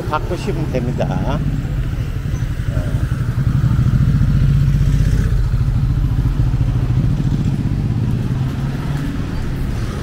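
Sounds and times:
motorbike engine running: 0:00.0 - 0:08.7.

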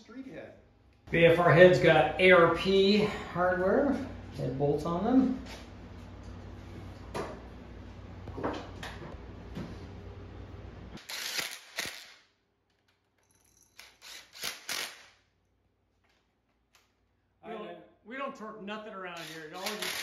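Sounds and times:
steady low hum: 0:00.0 - 0:11.2
impact driver bursts: 0:11.0 - 0:12.1, 0:13.8 - 0:15.1, 0:19.2 - 0:20.0.

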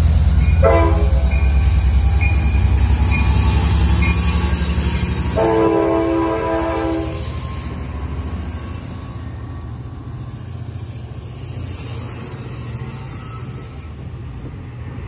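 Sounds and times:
locomotive engine rumble: 0:00.0 - 0:15.0
locomotive chime horn: 0:00.4 - 0:03.4, 0:05.2 - 0:07.4.

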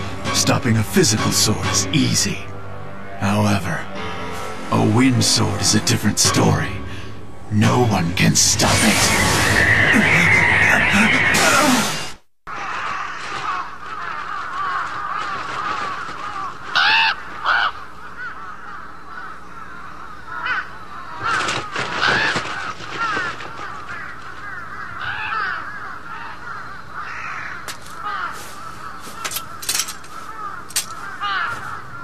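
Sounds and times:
crows cawing: 0:12.5 - 0:32.0.

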